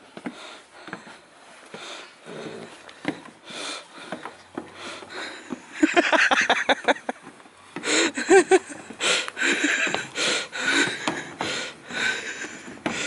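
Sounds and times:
scuffing on wooden boards: 0.0 - 13.0
man breathing hard: 0.2 - 5.8, 7.7 - 13.0
man laughing: 5.7 - 7.3, 8.0 - 10.1.

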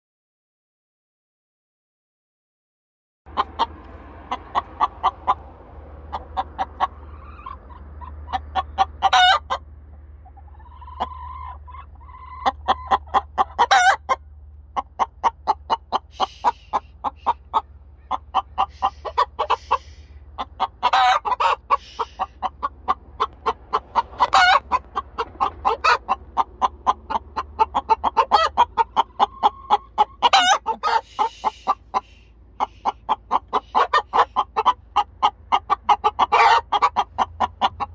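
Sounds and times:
hens clucking: 3.3 - 37.9
hen squawking: 6.1 - 9.6, 10.4 - 14.2, 15.2 - 37.8.

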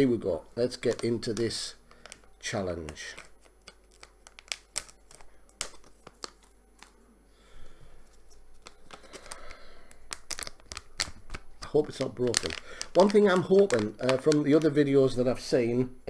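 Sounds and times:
soft rustling of packet: 0.0 - 15.6
chip packet crackling: 0.6 - 7.0, 8.1 - 15.5
packet tearing open: 0.7 - 2.2, 2.8 - 6.9, 8.5 - 15.2.

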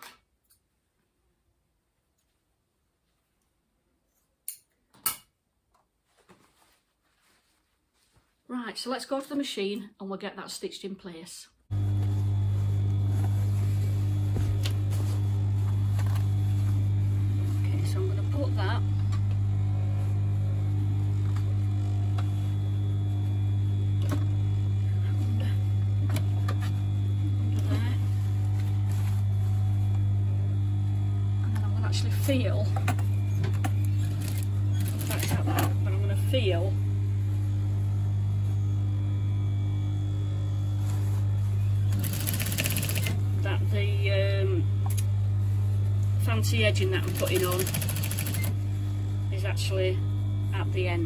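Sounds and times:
sewing machine motor hum: 11.7 - 51.0
sewing machine stitching: 34.0 - 35.8, 41.9 - 43.2, 47.0 - 48.6.

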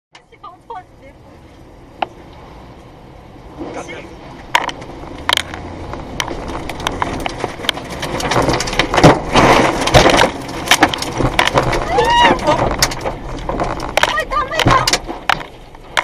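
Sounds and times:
rain and debris striking a car: 0.1 - 16.0
strong wind buffeting a car: 1.6 - 16.0.

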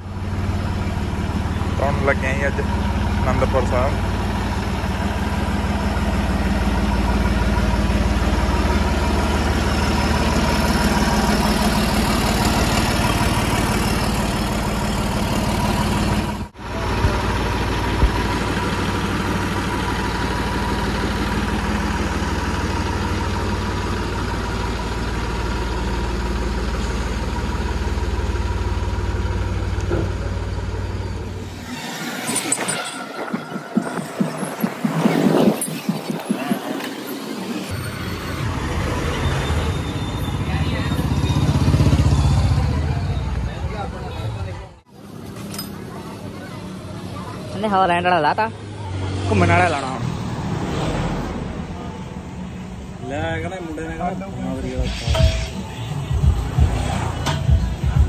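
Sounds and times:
tractor diesel engine idling: 0.0 - 31.6, 51.2 - 58.0.

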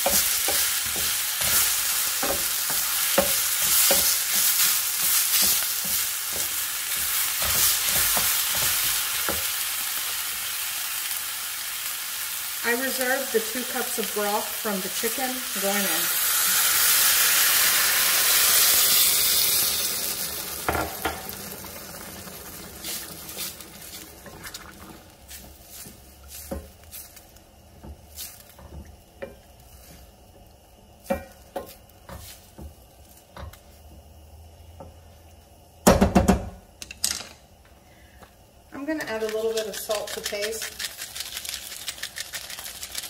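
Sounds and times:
wooden spatula tapping a pan: 0.0 - 9.5
broth sizzling in a hot skillet: 0.0 - 35.3.

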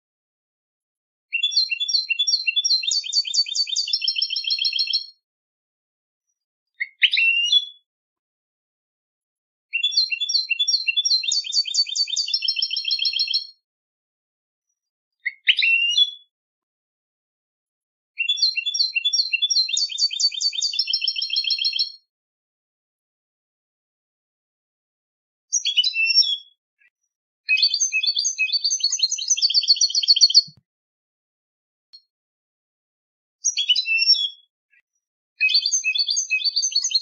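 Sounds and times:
goldfinch song trill: 9.8 - 13.5.

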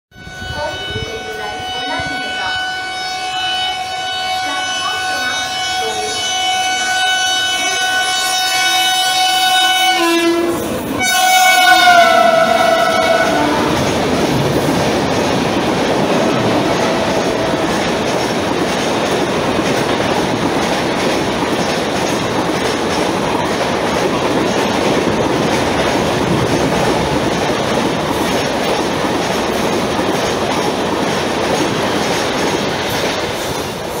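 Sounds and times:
train wheels rushing on rails: 0.2 - 34.0
clickety-clack of rail joints: 10.5 - 34.0.

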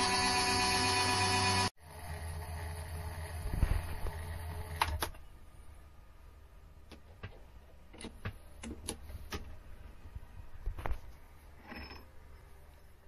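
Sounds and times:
lathe humming: 0.0 - 4.7.

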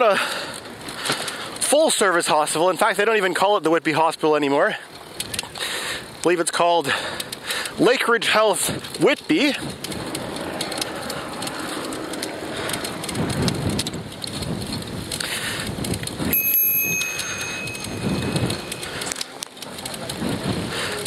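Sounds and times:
wind crackling on microphone: 8.6 - 16.4, 17.4 - 21.0.

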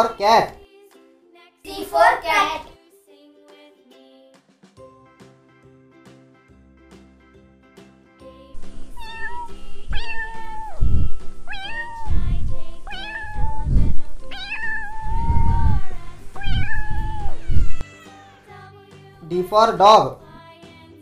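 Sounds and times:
cat meowing: 8.8 - 18.6.

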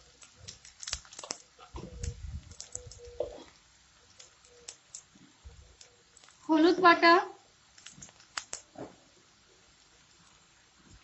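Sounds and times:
onions frying in oil: 0.0 - 11.0.

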